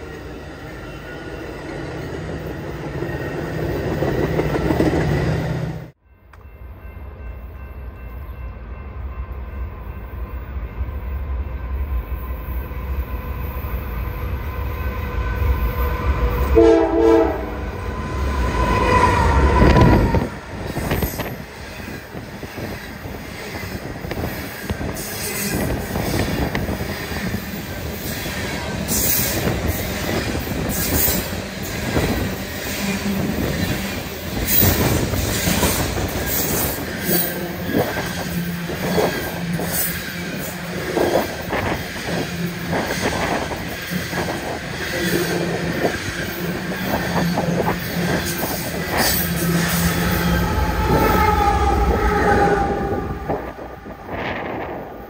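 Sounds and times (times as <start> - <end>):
train wheels rumbling and clanking: 1.6 - 6.8, 17.6 - 55.0
train horn: 14.5 - 20.5, 48.9 - 54.6.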